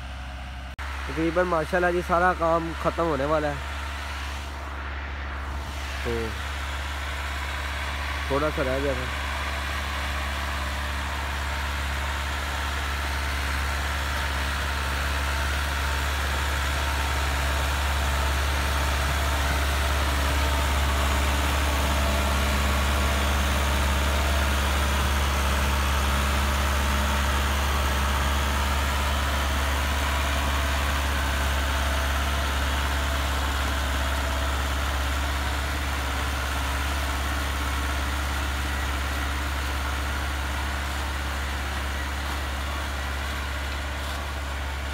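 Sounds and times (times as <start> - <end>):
tractor diesel engine under load: 0.0 - 44.9.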